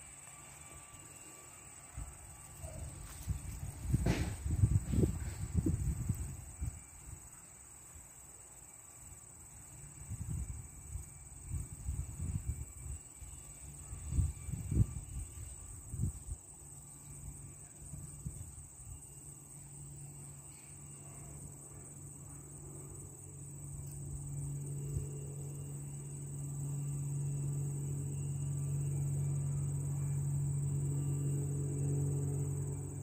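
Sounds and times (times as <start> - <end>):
crickets chirping: 0.0 - 33.0
low steady hum: 0.0 - 33.0
wind buffeting microphone: 3.3 - 6.8.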